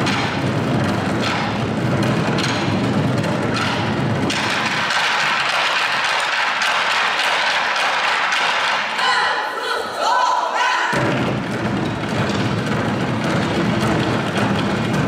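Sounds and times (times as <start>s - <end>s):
drum ensemble roll: 0.0s - 9.2s, 10.9s - 15.0s.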